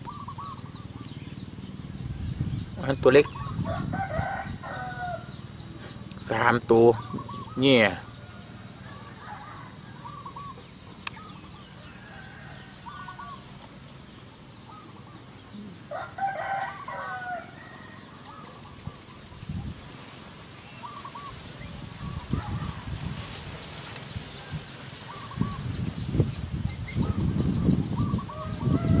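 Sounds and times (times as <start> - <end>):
rooster crowing: 3.4 - 5.5, 8.1 - 10.5, 11.6 - 13.5, 15.8 - 18.6, 28.2 - 29.0.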